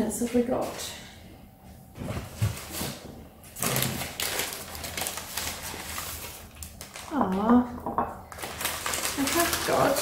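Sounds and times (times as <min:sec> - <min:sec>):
rustling and crinkling wrapping: 0:02.0 - 0:07.6, 0:08.2 - 0:10.0.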